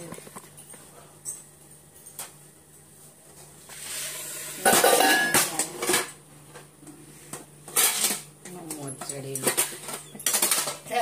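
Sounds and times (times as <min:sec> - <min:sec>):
dishes and utensils clattering: 0:03.8 - 0:06.2, 0:07.7 - 0:11.0.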